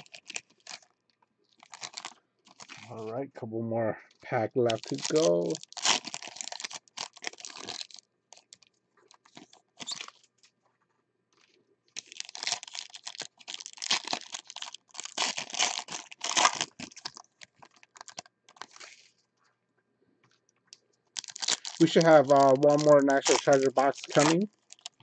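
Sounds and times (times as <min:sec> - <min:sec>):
foil wrappers crinkling and tearing: 0:00.0 - 0:00.9, 0:01.5 - 0:02.9, 0:04.6 - 0:10.2, 0:11.4 - 0:19.2, 0:21.1 - 0:25.0.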